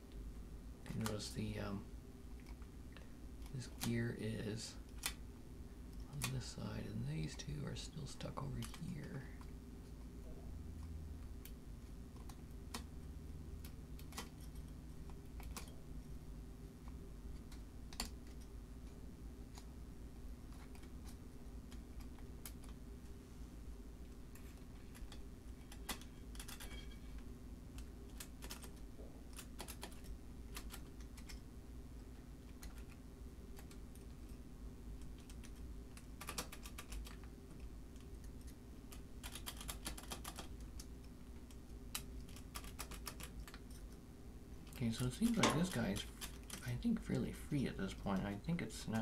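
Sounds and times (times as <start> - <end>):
steady low hum: 0.0 - 49.0
metallic clicks of calculator: 39.2 - 40.5.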